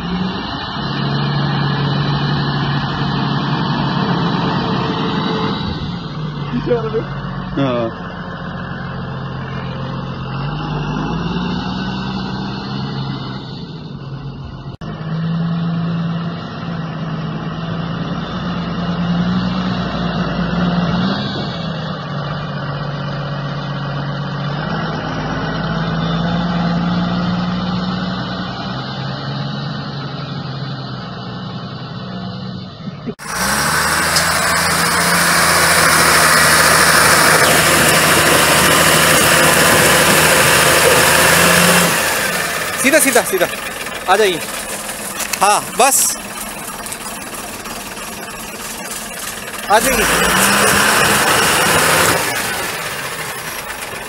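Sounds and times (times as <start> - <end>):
diesel truck engine revving: 0.0 - 54.0.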